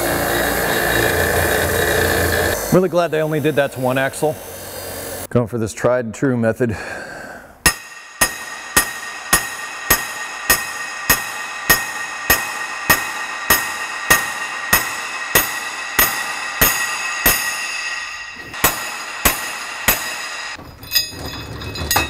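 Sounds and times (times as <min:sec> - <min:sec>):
hammer striking metal: 0:07.6 - 0:22.0
axle shaft ringing: 0:07.7 - 0:22.0.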